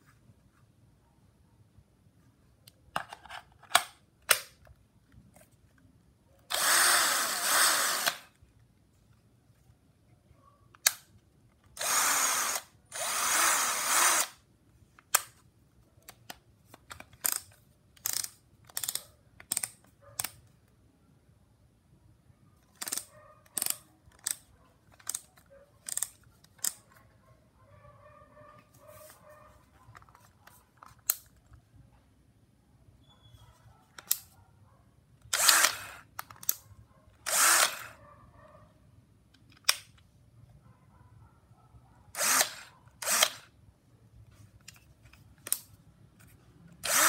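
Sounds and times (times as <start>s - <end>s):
cordless drill motor whirring: 6.5s - 8.3s, 11.8s - 14.4s, 35.3s - 36.1s, 37.2s - 38.0s, 42.2s - 43.5s, 46.8s - 47.0s
drill handling clicks: 6.5s - 8.3s, 11.8s - 14.4s, 16.1s - 20.4s, 22.7s - 26.8s, 35.3s - 36.6s, 37.2s - 37.9s, 42.2s - 43.5s, 45.4s - 47.0s.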